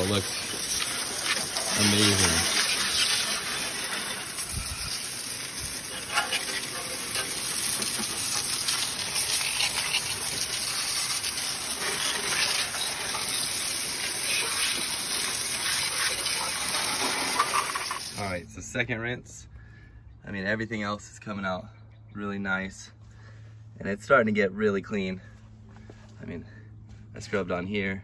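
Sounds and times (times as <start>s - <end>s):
hose spray hissing on engine: 0.0s - 18.2s.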